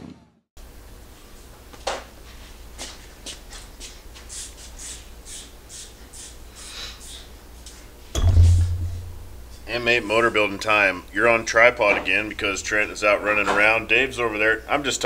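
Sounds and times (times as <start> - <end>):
footsteps scuffing on floor: 1.7 - 4.3
steady low hum: 7.3 - 15.0
heavy low thump: 8.2 - 9.7.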